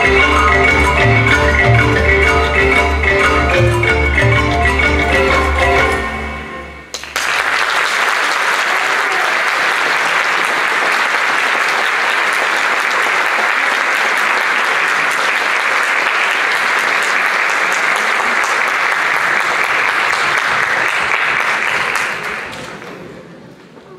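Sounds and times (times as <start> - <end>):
music: 0.0 - 6.9
audience applauding: 6.9 - 23.4.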